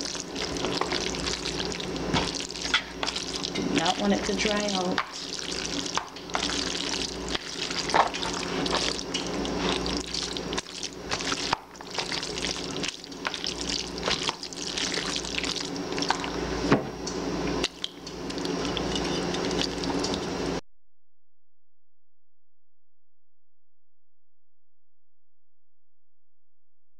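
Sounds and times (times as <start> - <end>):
spoon stirring wet food: 0.0 - 3.9, 5.0 - 16.4.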